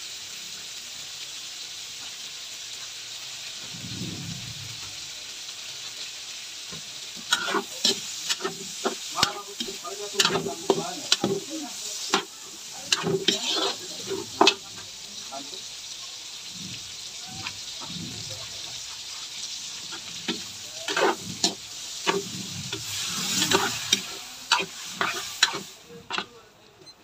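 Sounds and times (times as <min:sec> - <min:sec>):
food sizzling in oil: 0:00.0 - 0:27.0
metal spatula scraping a wok: 0:07.0 - 0:15.7, 0:16.4 - 0:26.4.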